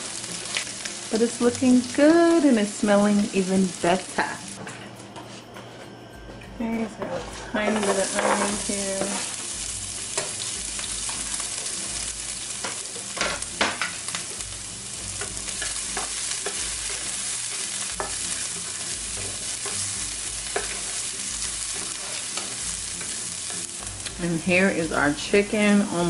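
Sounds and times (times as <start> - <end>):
onion sizzling in oil: 0.0 - 4.6, 7.5 - 26.0
wooden spoon scraping a pan: 7.1 - 9.3.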